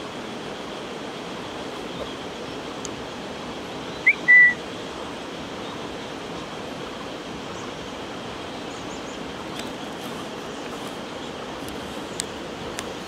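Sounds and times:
steady hiss: 0:00.0 - 0:13.0
short whistle: 0:04.1 - 0:04.6.

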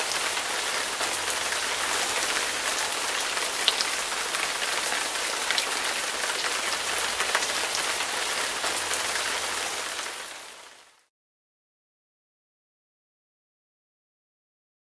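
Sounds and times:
floodwater rushing: 0:00.0 - 0:10.5.

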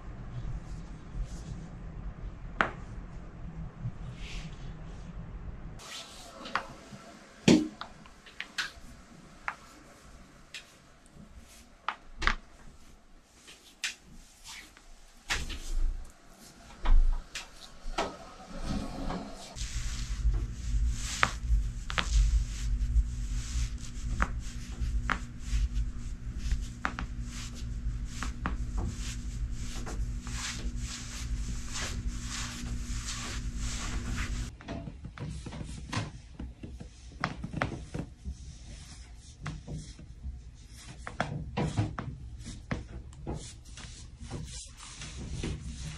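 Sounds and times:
steady low hum: 0:00.0 - 0:13.5, 0:15.0 - 0:34.5.

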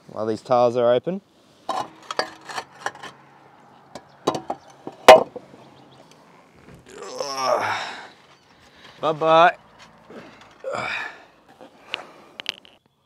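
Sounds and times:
roof tiles clattering: 0:01.7 - 0:03.3, 0:03.9 - 0:05.6, 0:08.3 - 0:12.8.

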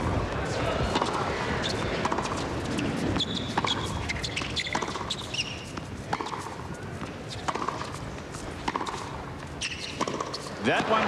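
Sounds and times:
stadium background noise: 0:00.0 - 0:11.0
racquet striking tennis ball: 0:00.9 - 0:11.0.

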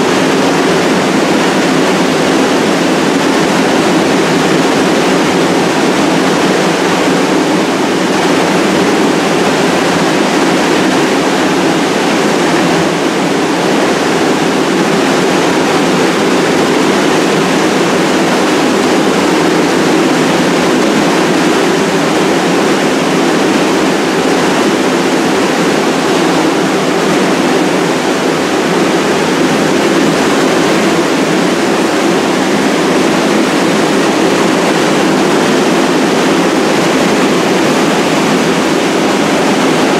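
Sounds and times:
ventilation rushing: 0:00.0 - 0:39.9.

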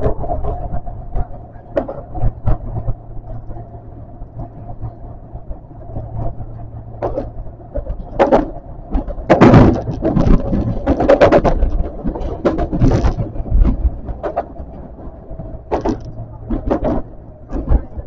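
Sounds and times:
subway train rumble: 0:00.0 - 0:18.0
rushing clatter: 0:05.8 - 0:18.0
wheel knocks: 0:08.1 - 0:14.5, 0:15.7 - 0:18.0.

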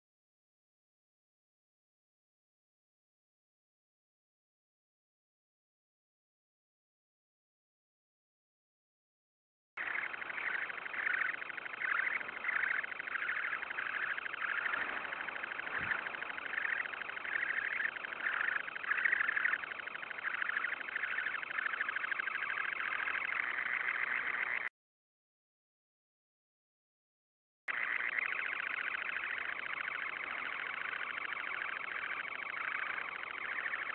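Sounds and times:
sandpiper high trill: 0:09.8 - 0:24.7.

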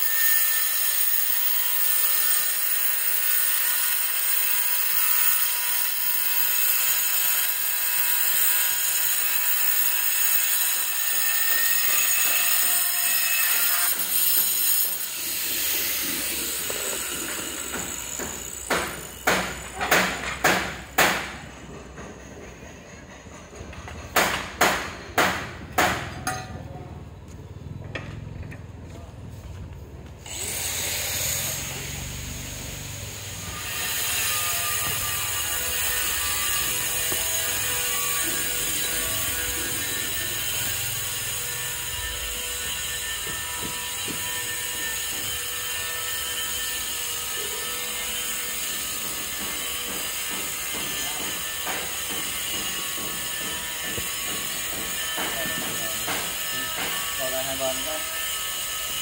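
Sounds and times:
machine whir with high hiss: 0:30.2 - 0:41.8.

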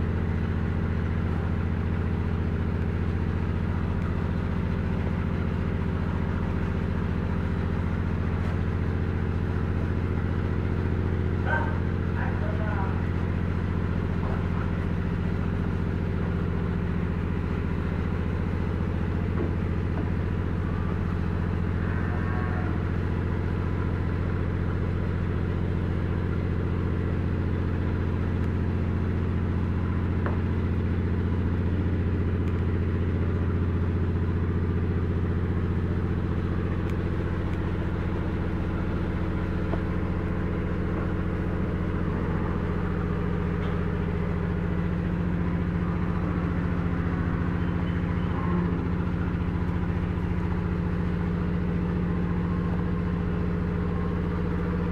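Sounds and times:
low machine hum: 0:00.0 - 0:54.9.

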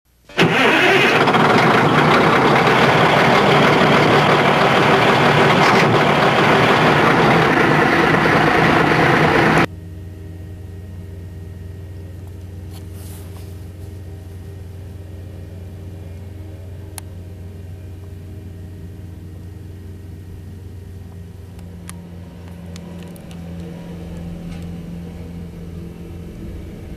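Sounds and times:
loud engine: 0:00.3 - 0:09.7, 0:12.3 - 0:26.9
paving machine engine idling: 0:00.3 - 0:09.7, 0:10.3 - 0:26.9.

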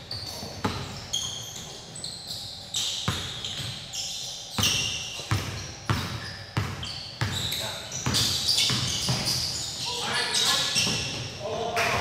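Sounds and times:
sneakers squeaking on court: 0:00.0 - 0:11.5
basketball bouncing on wooden floor: 0:00.4 - 0:01.0, 0:03.0 - 0:03.7, 0:04.6 - 0:09.4.

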